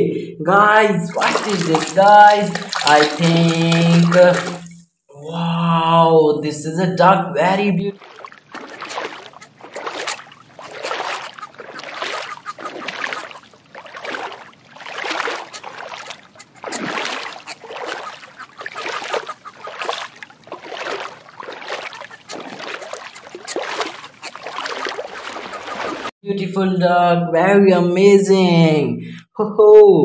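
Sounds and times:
water sloshing: 0.8 - 4.9, 7.9 - 26.1.

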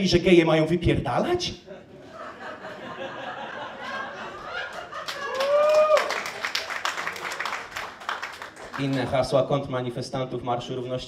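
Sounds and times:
audience laughing: 1.7 - 5.6
scattered clapping: 4.7 - 9.2
person whooping: 5.2 - 6.4.

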